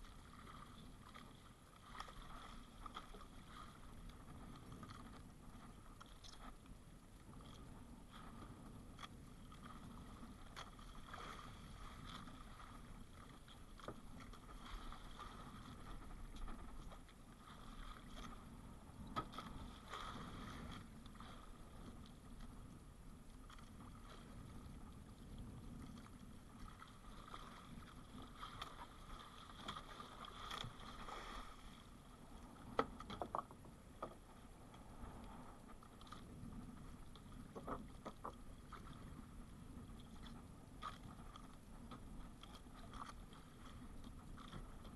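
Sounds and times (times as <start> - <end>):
water lapping against hull: 0.0 - 44.9.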